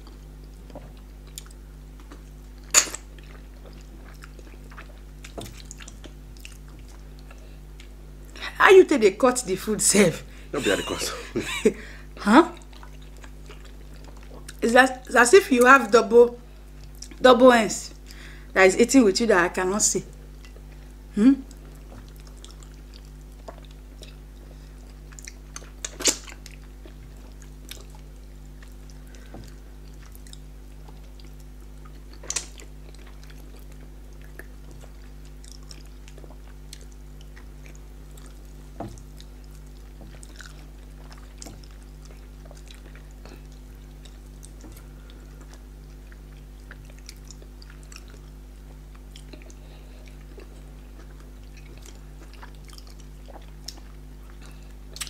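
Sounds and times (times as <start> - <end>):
wet chewing: 0.0 - 8.4, 12.5 - 15.1, 20.1 - 55.0
steady low hum: 0.0 - 55.0
mouth clicks and smacks: 25.1 - 27.0, 32.1 - 39.3, 48.9 - 55.0.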